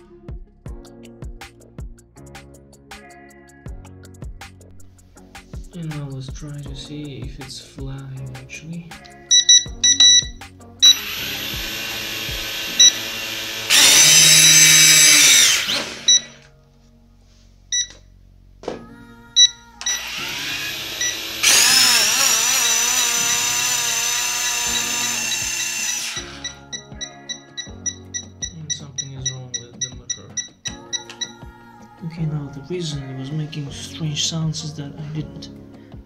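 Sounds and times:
toy drone motors whining: 10.8 - 16.4, 19.8 - 27.7.

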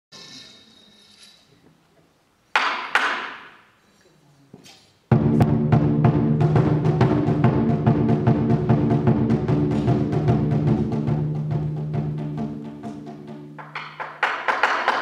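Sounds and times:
drum-led music track: 5.1 - 14.2.

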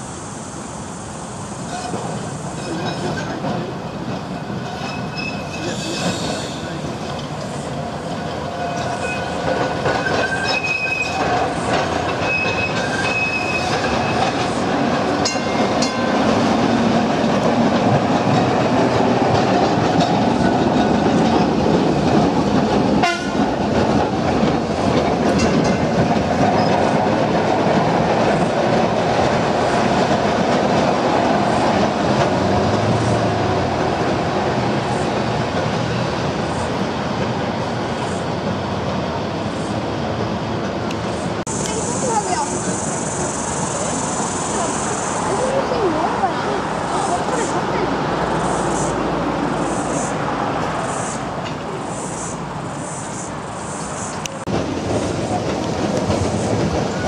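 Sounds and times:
tram rumbling along track: 0.0 - 57.0
high-pitched wheel squeals: 4.8 - 6.6, 10.0 - 11.2, 12.2 - 14.3.

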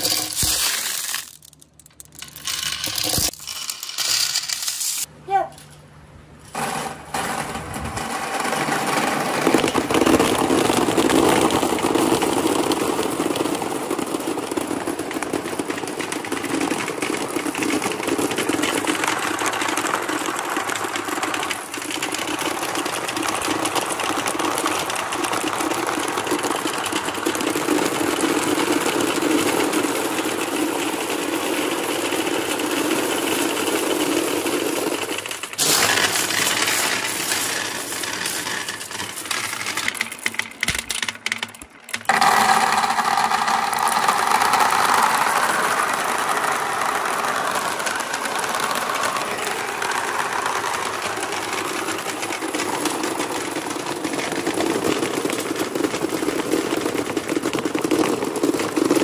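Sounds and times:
hand sweeping through marbles: 0.0 - 5.1, 32.9 - 40.4
marbles clattering into a plastic tub: 0.0 - 5.1, 6.5 - 59.0.

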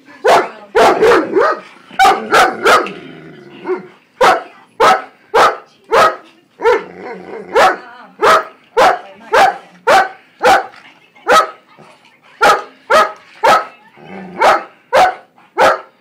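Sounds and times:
dog barking: 0.2 - 2.9, 3.7 - 6.9, 7.5 - 10.7, 11.3 - 11.6, 12.4 - 13.8, 14.4 - 16.0.

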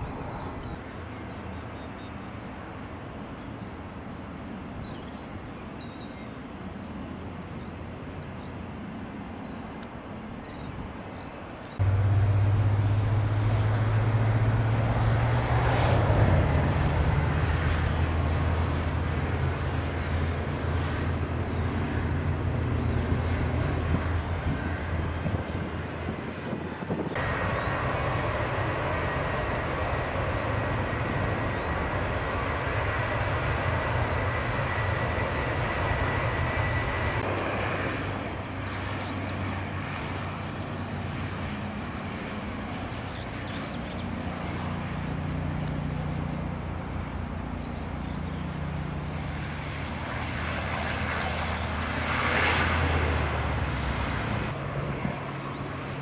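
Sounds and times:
high engine whine: 11.2 - 56.0
turboprop propeller drone: 11.6 - 56.0.

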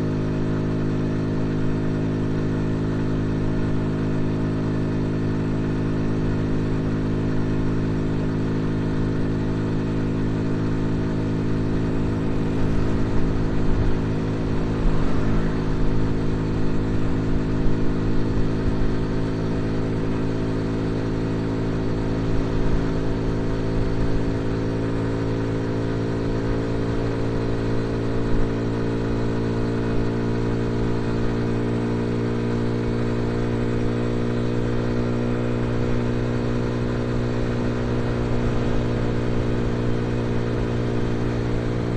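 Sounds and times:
motorcycle engine cruising: 0.0 - 41.9.

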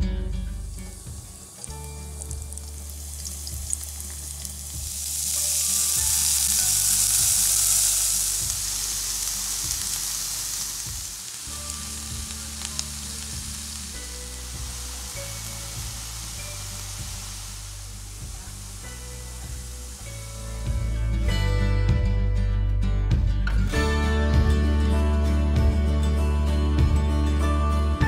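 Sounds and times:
garlic sizzling in hot oil: 0.5 - 21.3.

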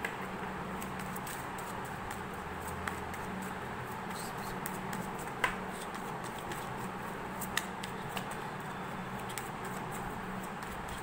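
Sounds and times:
cards being shuffled: 4.0 - 8.4.

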